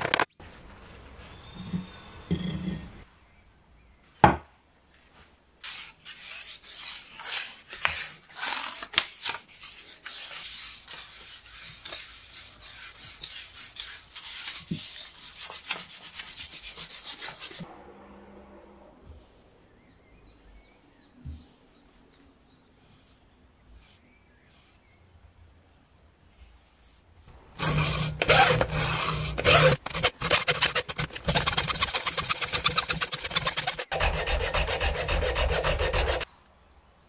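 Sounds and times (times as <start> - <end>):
hand rubbing wooden handle: 27.6 - 36.2.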